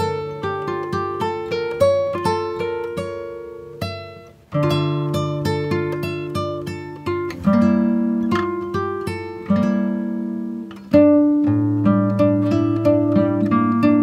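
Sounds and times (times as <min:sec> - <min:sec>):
plucked guitar melody: 0:00.0 - 0:14.0.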